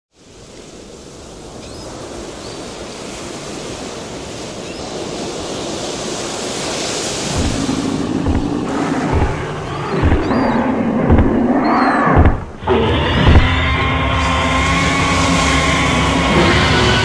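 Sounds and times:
ocean surf on beach: 0.1 - 11.5
deep low thuds: 7.3 - 13.7
low steady drone: 7.4 - 17.0.

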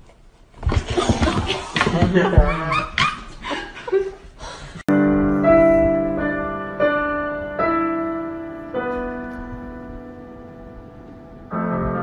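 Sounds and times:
upright piano played slowly: 4.9 - 12.0.

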